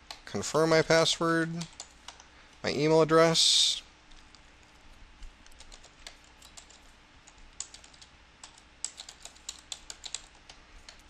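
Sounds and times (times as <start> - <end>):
typing on computer keyboard: 1.6 - 2.3, 5.4 - 11.0.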